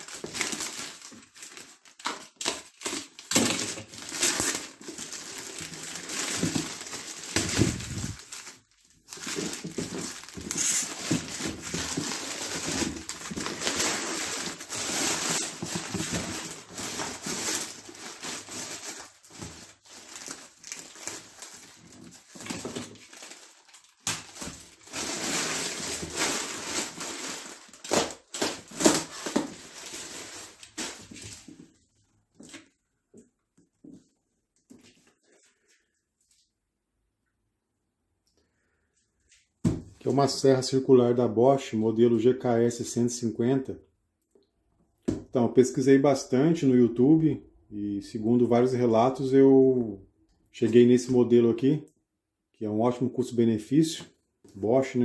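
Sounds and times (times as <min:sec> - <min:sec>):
plastic bag crinkling and tearing: 0:00.0 - 0:31.7.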